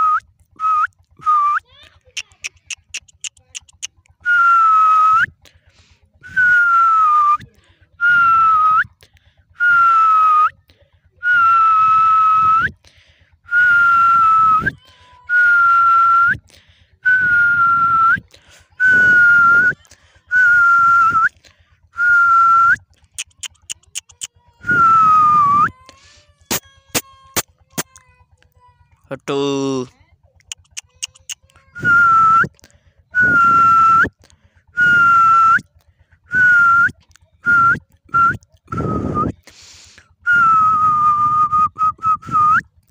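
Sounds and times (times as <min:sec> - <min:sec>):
dog whining: 0:02.2 - 0:04.4, 0:23.1 - 0:27.9, 0:30.5 - 0:32.5.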